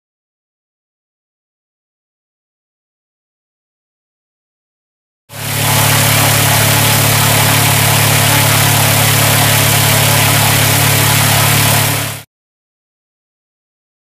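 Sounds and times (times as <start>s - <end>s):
drone propeller engine humming: 5.3s - 12.2s.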